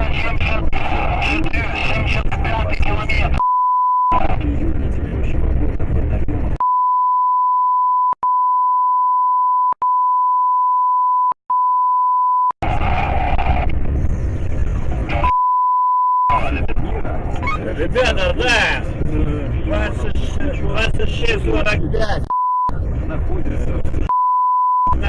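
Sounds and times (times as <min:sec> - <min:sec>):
vehicle road and engine noise: 0:00.0 - 0:03.4, 0:04.1 - 0:06.6, 0:12.6 - 0:15.5, 0:16.3 - 0:24.2
censor bleep tone: 0:06.6 - 0:12.6, 0:15.2 - 0:16.3, 0:24.1 - 0:25.0.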